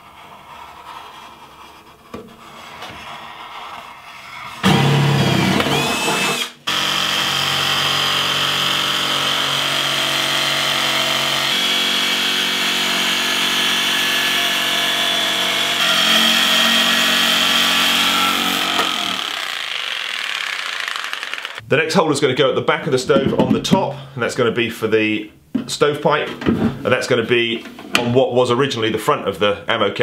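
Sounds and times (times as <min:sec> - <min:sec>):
drill boring through steel: 0:04.6 - 0:21.6
jigsaw cutting sheet steel: 0:04.6 - 0:21.6.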